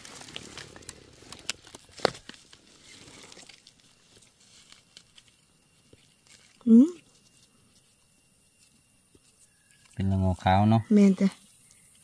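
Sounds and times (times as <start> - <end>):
twigs snapping: 0.0 - 6.6
forest floor litter rustling: 0.0 - 10.2.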